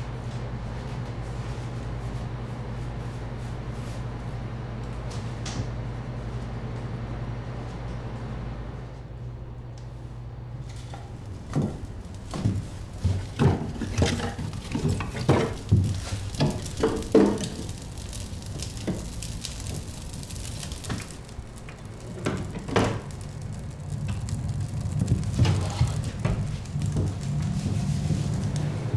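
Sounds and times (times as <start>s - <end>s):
low steady hum: 0.0s - 28.9s
objects knocking and clattering: 10.8s - 20.0s, 20.7s - 28.9s.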